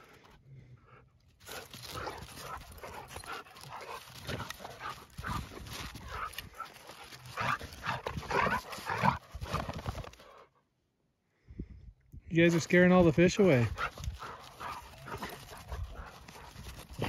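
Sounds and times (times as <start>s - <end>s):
dogs panting: 0.0s - 10.5s, 12.6s - 17.0s
paws scuffing in snow: 1.4s - 10.2s, 13.4s - 17.0s.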